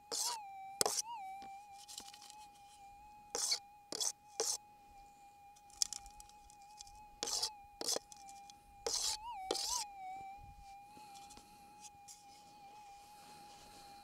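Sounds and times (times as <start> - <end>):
metal detector rising tone: 5.6 - 14.0.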